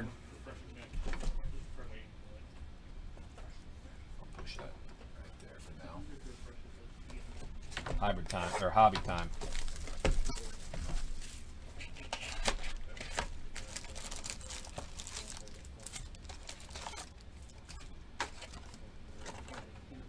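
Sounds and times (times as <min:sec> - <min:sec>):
packaging crinkling and tearing: 0:12.3 - 0:17.2.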